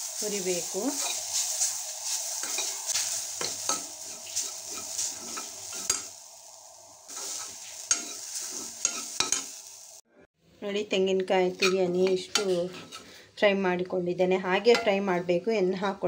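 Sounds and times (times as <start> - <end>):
soft sizzling hiss: 0.0 - 10.0
metal spoon scraping a pan: 0.9 - 6.2, 7.1 - 9.6, 11.4 - 13.3.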